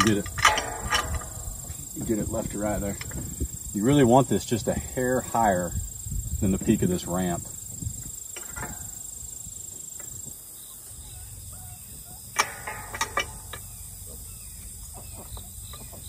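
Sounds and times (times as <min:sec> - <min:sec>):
gate latch clicks: 0:00.0 - 0:03.2, 0:12.4 - 0:13.7
metal gate clanking: 0:00.0 - 0:05.6, 0:08.3 - 0:09.2, 0:12.2 - 0:14.8
insect whine: 0:00.0 - 0:16.0.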